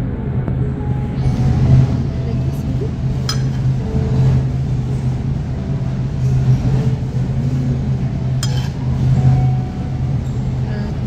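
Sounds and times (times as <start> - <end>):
steady low hum: 0.0 - 11.0
spoon clinking on iron: 8.4 - 8.8.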